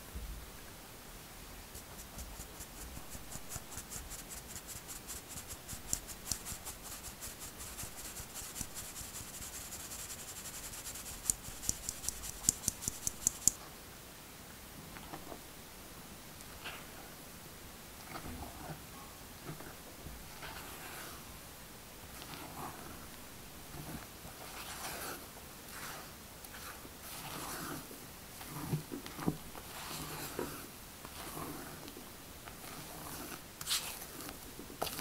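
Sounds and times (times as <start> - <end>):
flour sifting through sieve: 1.7 - 13.5, 20.3 - 21.3, 22.1 - 35.0.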